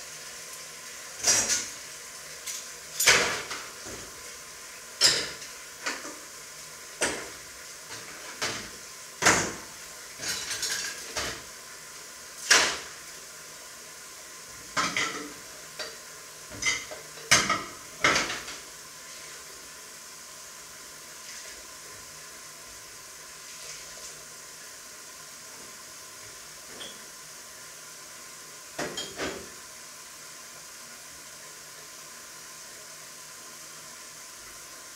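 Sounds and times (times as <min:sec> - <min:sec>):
faint steady hiss: 0:00.0 - 0:34.9
dishes clattering in sink: 0:01.2 - 0:01.8, 0:02.4 - 0:04.2, 0:05.0 - 0:06.3, 0:07.0 - 0:11.5, 0:12.4 - 0:12.9, 0:14.7 - 0:18.7, 0:26.7 - 0:27.1, 0:28.8 - 0:29.6.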